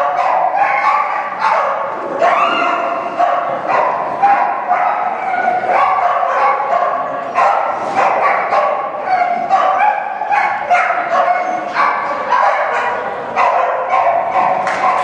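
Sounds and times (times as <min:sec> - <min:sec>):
dog barking excitedly: 0:00.0 - 0:15.0.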